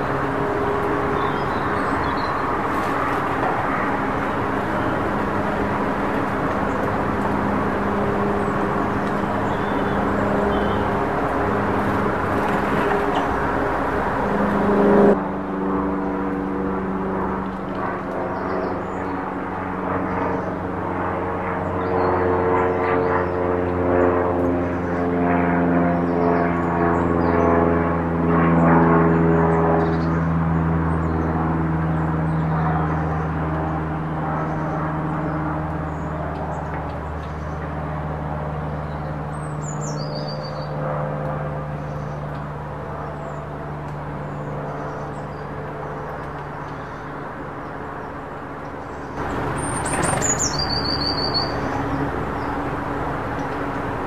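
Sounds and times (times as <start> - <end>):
engine droning: 0.0 - 21.0, 28.0 - 54.0
high falling bird call: 49.2 - 52.6.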